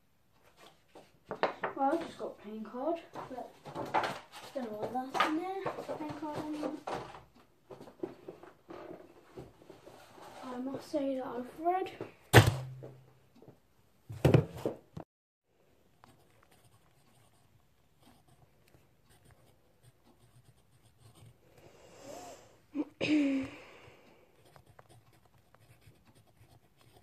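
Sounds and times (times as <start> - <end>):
sharp knock: 12.3 - 13.0
pencil scratching on paper: 16.0 - 21.7, 24.2 - 27.0.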